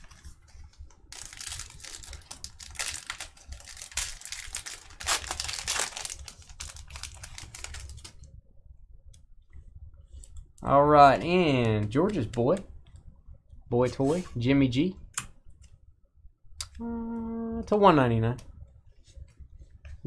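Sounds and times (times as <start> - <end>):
foil wrapper crinkling and tearing: 1.1 - 8.3.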